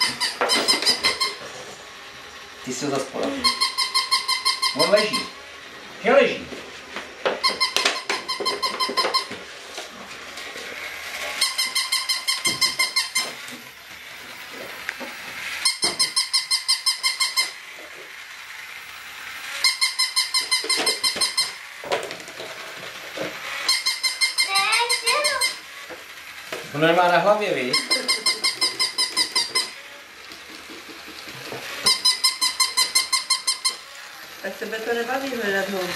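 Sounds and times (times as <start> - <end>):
toy dog squeaky electronic pulses: 0.0 - 1.5, 3.3 - 5.4, 7.4 - 9.4, 11.3 - 13.5, 15.6 - 17.7, 19.4 - 21.7, 23.5 - 25.7, 27.6 - 29.8, 31.7 - 34.0.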